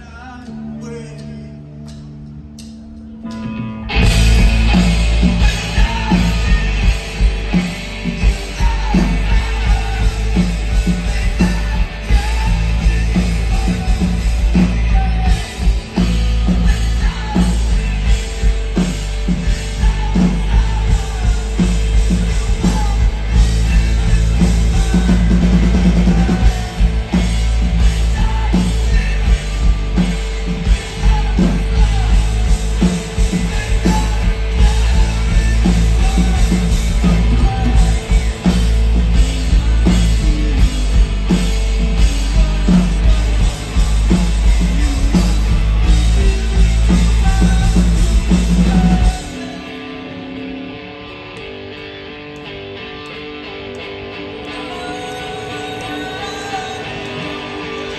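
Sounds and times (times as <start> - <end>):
bass guitar: 0.0 - 57.9
distorted electric guitars: 0.0 - 57.9
drum kit steady beat: 3.9 - 49.5.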